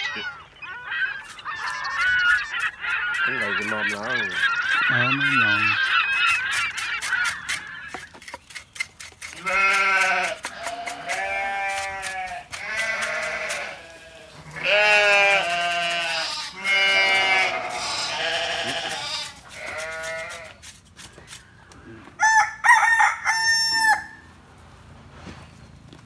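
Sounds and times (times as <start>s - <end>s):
livestock calling: 0.0s - 8.2s, 9.2s - 20.7s.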